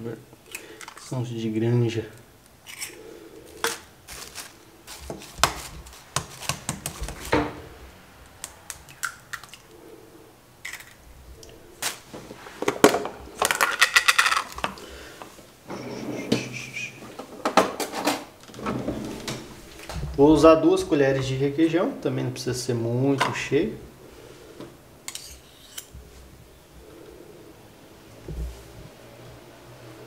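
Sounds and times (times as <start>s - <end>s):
foil seal crinkling: 3.6s - 7.3s
egg cracking on metal bowl: 8.2s - 9.7s.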